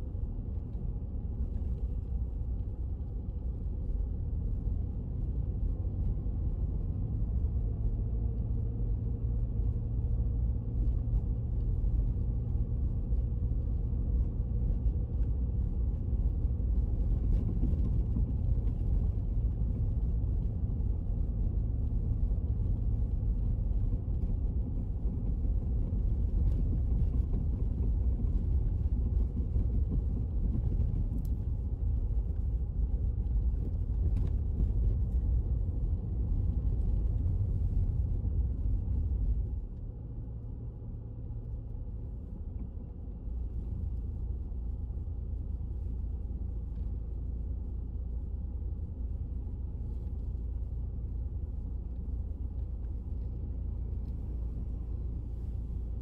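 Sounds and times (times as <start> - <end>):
car engine and tyres rumbling: 0.0 - 56.0.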